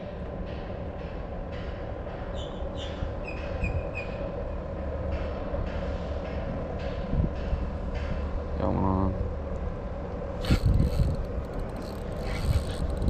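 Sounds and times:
wind buffeting microphone: 7.0 - 8.4, 10.3 - 13.0.

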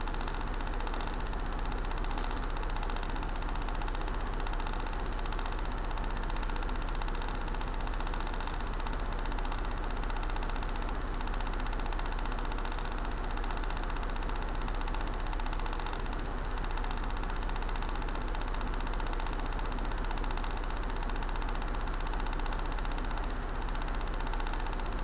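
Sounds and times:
scooter engine idling: 0.0 - 25.0.

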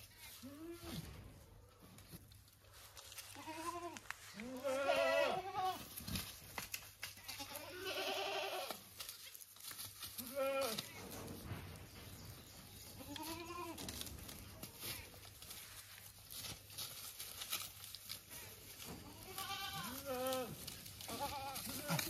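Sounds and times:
goats bleating: 3.3 - 5.9, 7.2 - 8.8, 10.2 - 10.9, 19.0 - 22.0.

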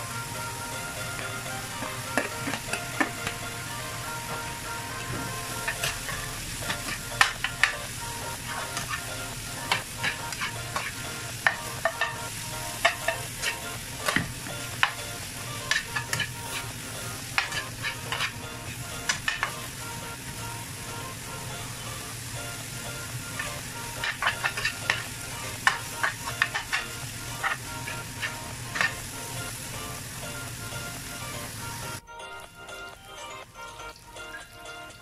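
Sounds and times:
food sizzling in a frying pan: 0.0 - 35.0
metal spatula scraping a pan: 4.9 - 19.6, 23.4 - 29.1.

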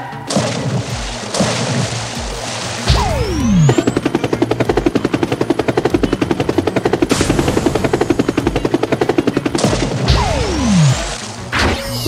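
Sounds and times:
cartoon helicopter rotor chopping: 0.3 - 12.0.

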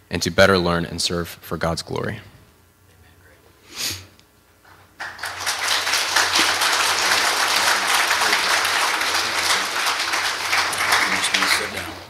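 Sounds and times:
congregation applauding: 4.7 - 12.0.

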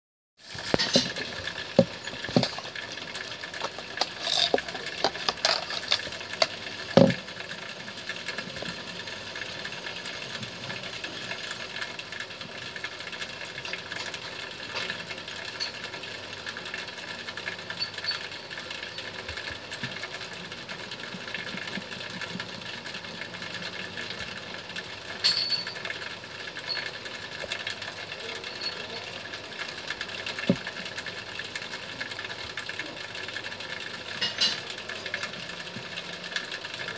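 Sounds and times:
calculator plastic clicks and knocks: 3.6 - 7.2.

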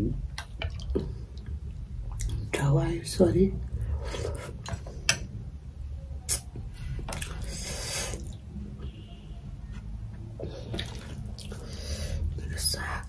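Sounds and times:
low steady hum: 0.0 - 13.0
person chewing quietly: 0.3 - 2.5, 6.3 - 8.4, 10.4 - 11.9
mouth clicks: 6.3 - 6.5.

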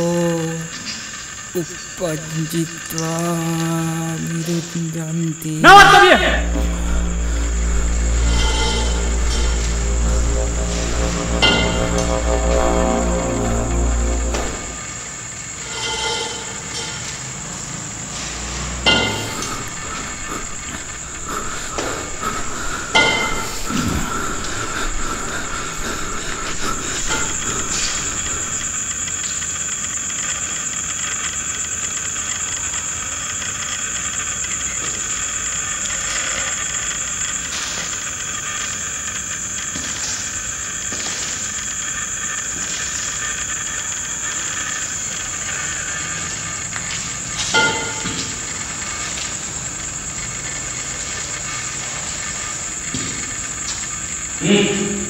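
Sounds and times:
shrill high-pitched drone: 1.6 - 15.2, 18.8 - 29.0
brief sharp sound: 5.6 - 15.0.

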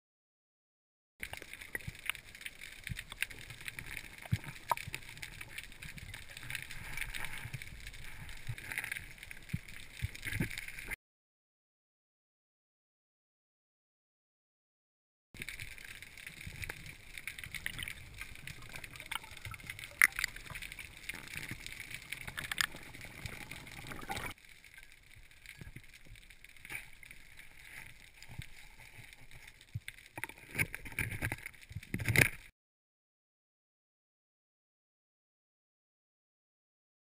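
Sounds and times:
sharp underwater clicks: 1.2 - 11.0, 15.4 - 32.5.

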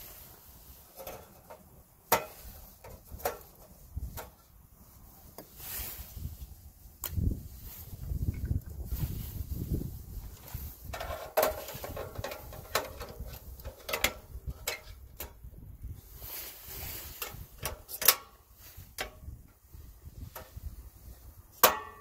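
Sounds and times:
wind on microphone: 5.9 - 17.7, 18.7 - 21.6
gas can clicking against metal: 17.2 - 18.3.

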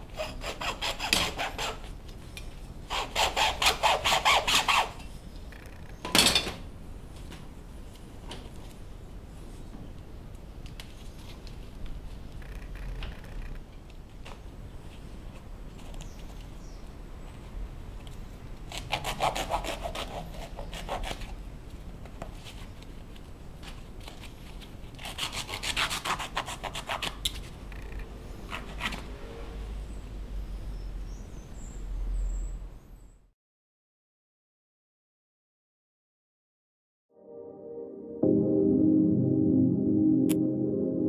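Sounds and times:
blade sawing through canvas: 0.1 - 1.8, 2.9 - 4.9.

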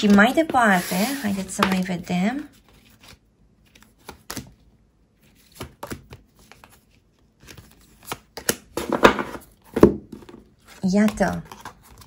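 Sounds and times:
cards being shuffled: 5.2 - 9.4.

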